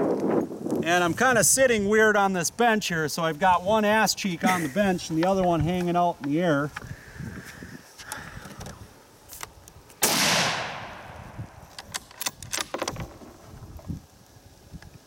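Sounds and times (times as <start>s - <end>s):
rifle shot with echo: 10.0s - 11.4s.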